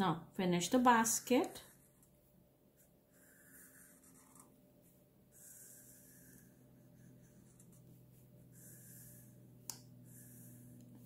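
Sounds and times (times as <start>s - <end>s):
marker scratching on paper: 2.8s - 9.4s.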